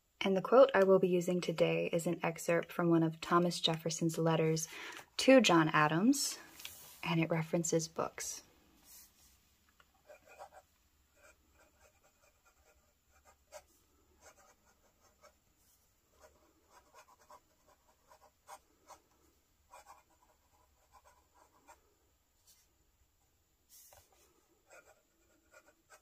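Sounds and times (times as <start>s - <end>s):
fountain pen scratching on paper: 10.0s - 15.4s, 16.1s - 19.0s, 19.7s - 21.8s, 24.7s - 26.0s.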